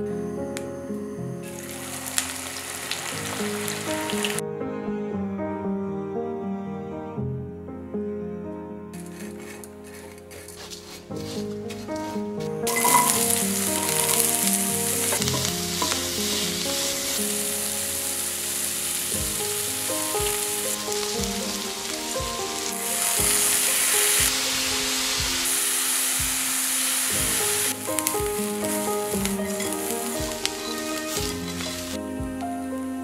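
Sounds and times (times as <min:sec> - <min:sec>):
food sizzling in hot oil: 0:01.5 - 0:04.4, 0:12.7 - 0:32.0.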